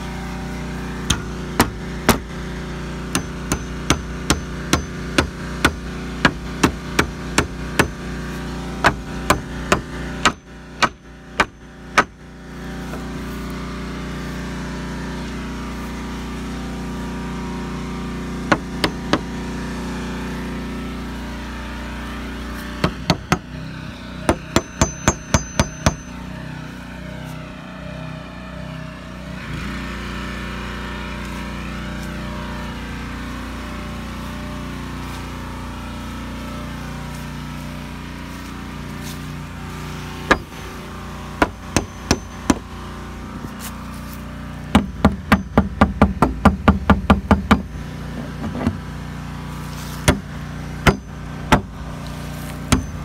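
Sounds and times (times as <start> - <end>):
hammer striking nails into wood: 1.1 - 2.3, 3.1 - 8.0, 8.8 - 12.2, 18.5 - 19.3, 22.8 - 23.5, 24.3 - 26.1, 41.4 - 42.6, 44.7 - 47.7, 50.0 - 51.7, 52.7 - 53.0.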